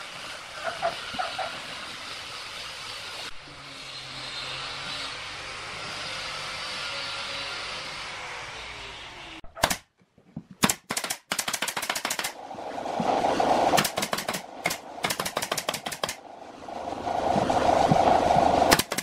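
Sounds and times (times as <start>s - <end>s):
nail gun firing into plywood: 9.6s - 9.9s, 10.6s - 12.4s, 13.8s - 16.2s, 18.7s - 19.0s
machine hum: 12.3s - 19.0s.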